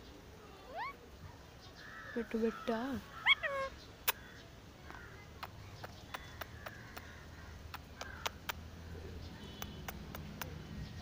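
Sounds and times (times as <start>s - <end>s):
parakeet squeaks: 0.7s - 1.0s, 3.2s - 3.8s
sharp clicks: 7.7s - 8.6s, 9.6s - 10.6s.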